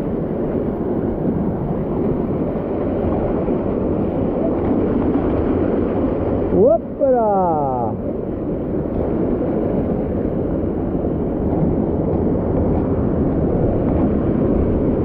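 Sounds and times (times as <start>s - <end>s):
stream water rushing: 2.6s - 8.2s.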